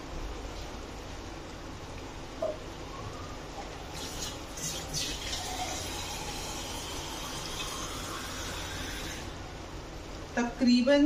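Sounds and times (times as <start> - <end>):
water pouring into pot: 3.9 - 9.4.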